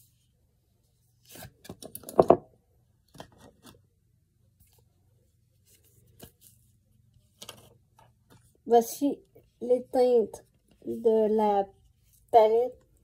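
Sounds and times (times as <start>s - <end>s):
cardboard palette handling noise: 3.0s - 3.9s, 5.5s - 8.6s.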